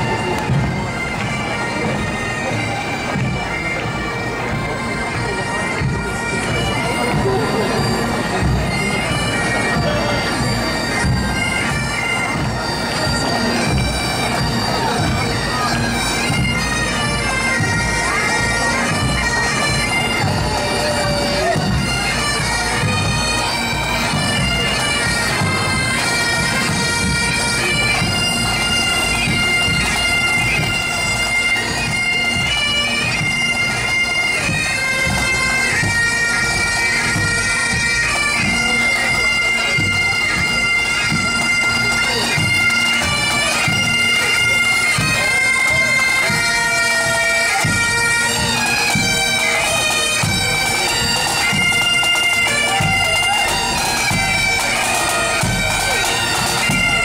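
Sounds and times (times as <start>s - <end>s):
bagpipe band playing a march: 0.0s - 57.0s.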